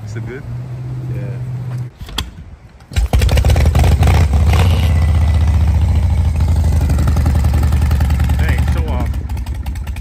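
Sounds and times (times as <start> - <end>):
motorcycle engine idling: 3.2 - 10.0.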